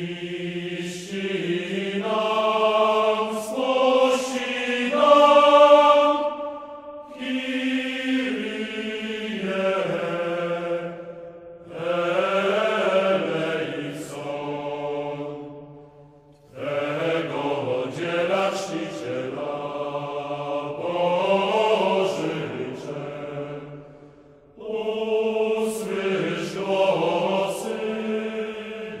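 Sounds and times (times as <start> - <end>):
slow chant-like singing: 0.0 - 29.0.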